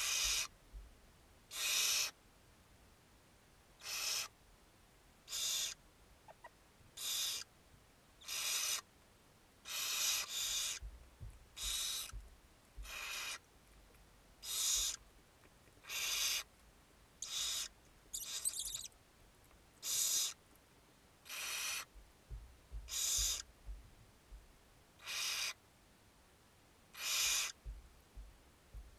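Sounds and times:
owl nestlings hissing calls: 0.0 - 0.5, 1.5 - 2.2, 3.8 - 4.4, 5.3 - 5.8, 7.0 - 7.5, 8.2 - 8.9, 9.6 - 10.9, 11.5 - 12.2, 12.8 - 13.4, 14.4 - 15.0, 15.8 - 16.5, 17.2 - 18.9, 19.8 - 20.4, 21.2 - 21.9, 22.7 - 23.5, 25.0 - 25.6, 26.9 - 27.7.

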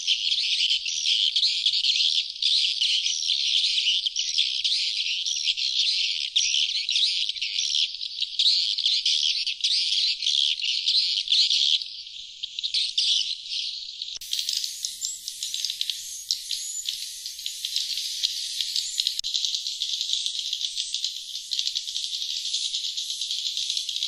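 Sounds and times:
swiftlets twittering: 14.2 - 24.0.

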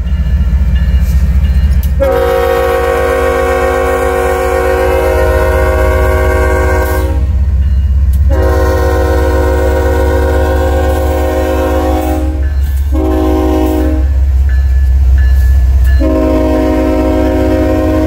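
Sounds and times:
low rumble of train: 0.0 - 18.0
locomotive air horn blasts: 2.0 - 7.4, 8.2 - 14.2, 16.0 - 18.0.

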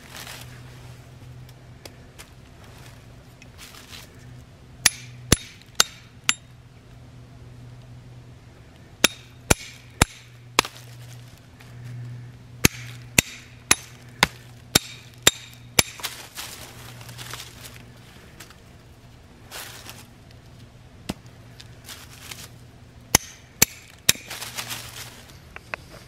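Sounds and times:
hatchet knocking wooden stake: 4.8 - 6.5, 9.0 - 10.7, 12.6 - 16.1, 23.1 - 24.3.

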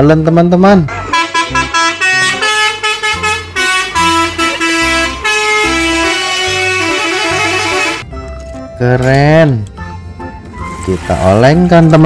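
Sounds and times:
musical truck horn tune: 0.9 - 8.8.

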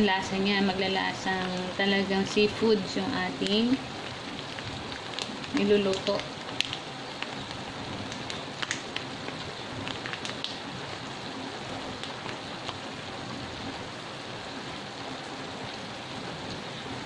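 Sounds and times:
vegetables sizzling in a wok: 0.0 - 17.0
small crackles: 3.3 - 14.0.

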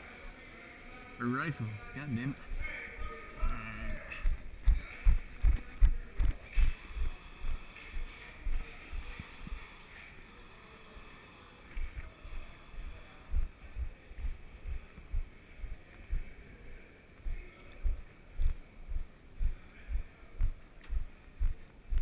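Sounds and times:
footsteps dull thumps: 4.2 - 9.2, 17.2 - 22.0.

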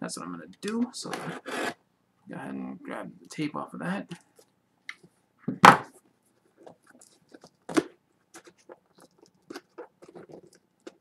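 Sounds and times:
packing tape scraping and crackling: 8.3 - 11.0.

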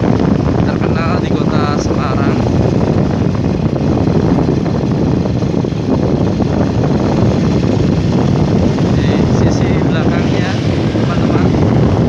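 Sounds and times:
motorcycle engine cruising: 0.0 - 12.0
wind buffeting microphone: 0.0 - 12.0.

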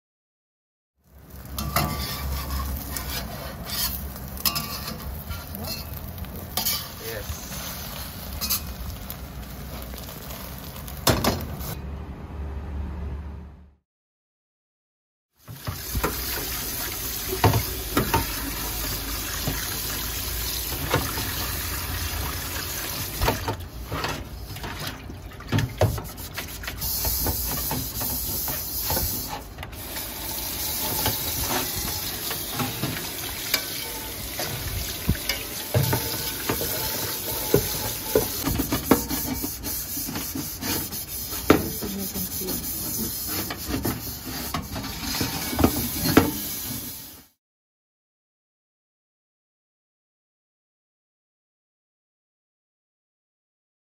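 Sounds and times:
sponge scrubbing wok: 1.3 - 6.0, 15.5 - 25.0, 25.6 - 47.3
wok knocks and scrapes: 1.3 - 8.8, 10.9 - 11.8, 17.3 - 19.7, 23.1 - 24.8, 25.5 - 29.6, 30.7 - 46.9.

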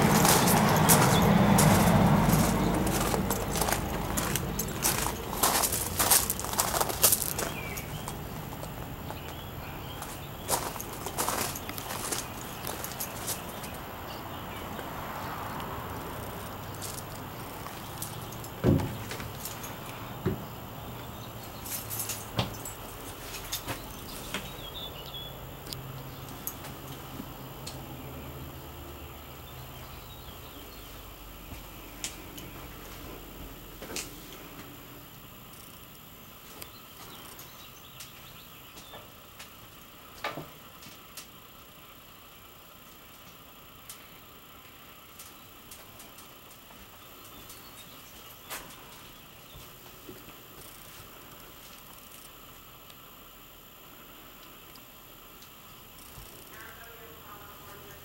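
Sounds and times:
steady low hum: 0.0 - 58.0
heavy footstep thump: 18.6 - 19.3.

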